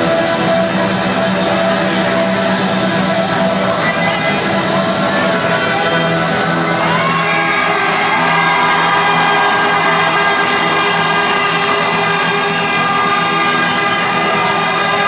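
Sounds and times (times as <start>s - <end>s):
live band playing chords: 0.0s - 15.0s
crowd shouting and whooping: 3.8s - 15.0s.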